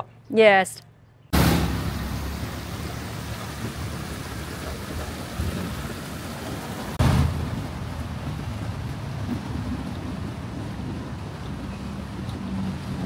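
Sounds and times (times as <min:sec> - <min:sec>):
rushing outdoor noise with rumble: 0:01.3 - 0:13.0.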